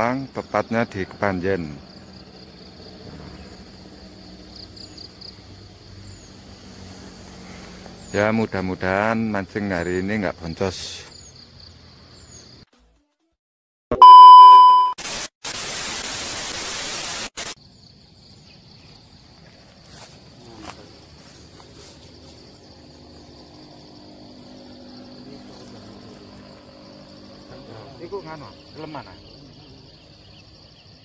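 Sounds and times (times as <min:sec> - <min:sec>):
high insect buzz: 0:00.7 - 0:08.2, 0:17.4 - 0:31.0
loud steady beep tone: 0:13.9 - 0:15.0
hissing static: 0:15.0 - 0:17.6.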